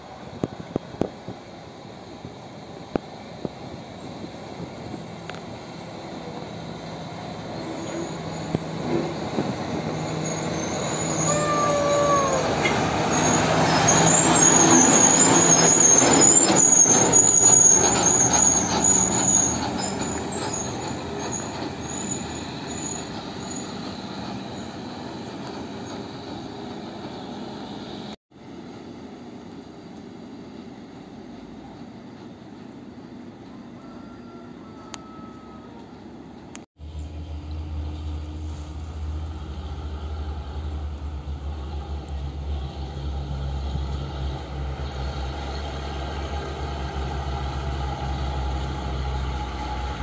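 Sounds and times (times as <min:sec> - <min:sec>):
high wavering squeal: 0:03.8 - 0:27.8
falling squeal: 0:05.8 - 0:28.0, 0:33.6 - 0:36.1.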